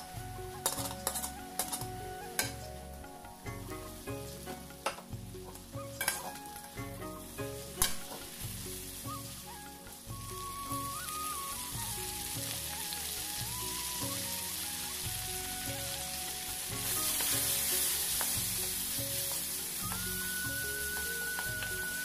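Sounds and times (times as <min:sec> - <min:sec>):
greens sizzling in a pan: 0:00.0 - 0:22.0.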